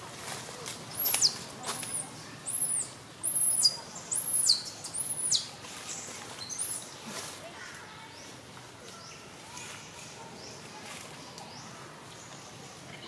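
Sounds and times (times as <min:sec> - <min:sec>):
baby monkey squealing: 0:02.5 - 0:05.4.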